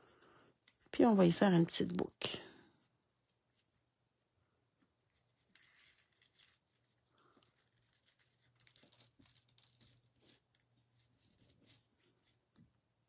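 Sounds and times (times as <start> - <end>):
ribbon and card rustling: 4.9 - 12.7.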